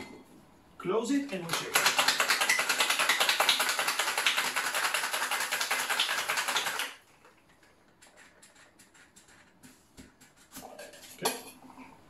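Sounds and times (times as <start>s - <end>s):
ice rattling in cocktail shaker: 1.6s - 6.8s.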